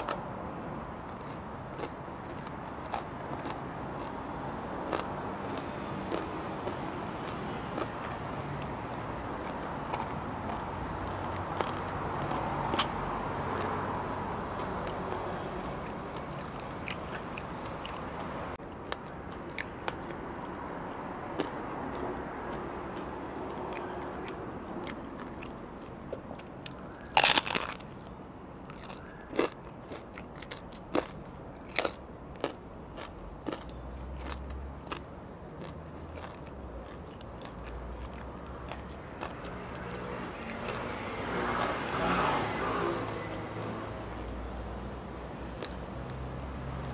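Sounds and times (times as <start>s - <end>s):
crispy pork crunching: 0.0s - 0.2s, 1.0s - 46.9s.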